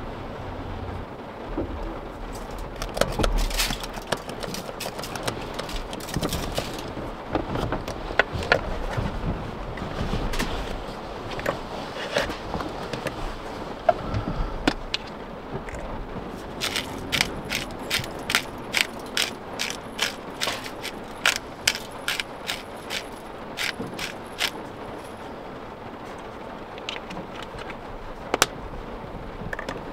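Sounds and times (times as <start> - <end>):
spice grinder clicking: 16.6 - 24.6.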